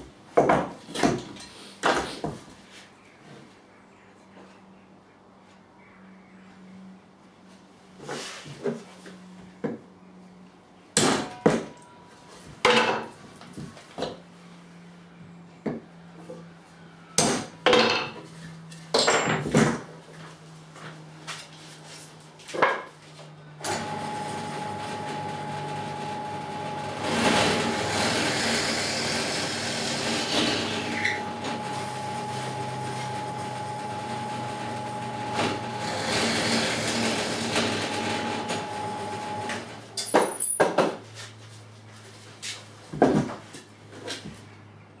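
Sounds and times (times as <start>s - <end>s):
drill motor humming: 23.7s - 39.7s.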